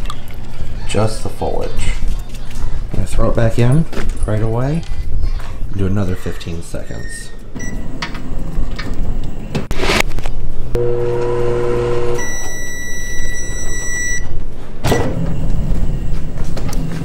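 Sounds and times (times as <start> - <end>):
microwave electrical hum: 10.5 - 14.6
long high beep: 10.8 - 14.3.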